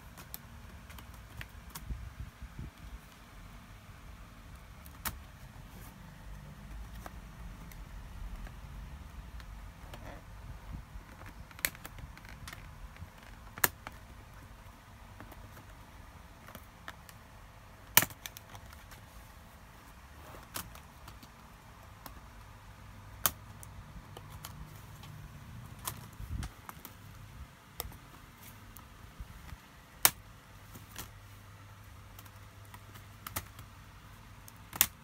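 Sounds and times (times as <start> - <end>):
sharp plastic clicks and snaps: 0.1 - 2.0, 4.5 - 5.4, 11.0 - 19.0, 23.1 - 31.2, 31.8 - 35.0.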